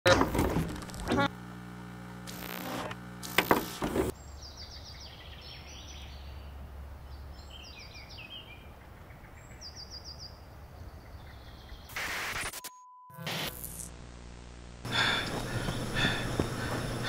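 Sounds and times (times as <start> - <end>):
bird chirping: 4.1 - 11.9
low rumble of wind: 4.2 - 11.8
loud burst of noise: 11.9 - 12.6.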